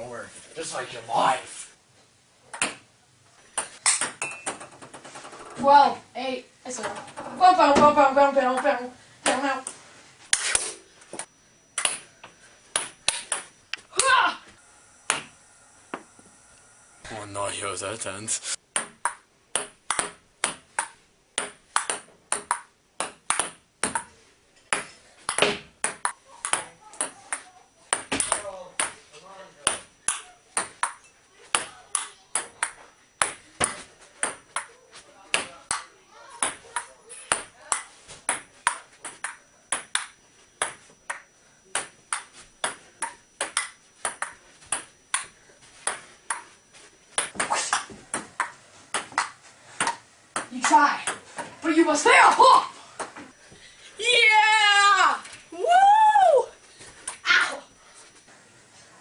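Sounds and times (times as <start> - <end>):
ping pong ball clicking: 18.8 - 24.1, 41.8 - 45.3.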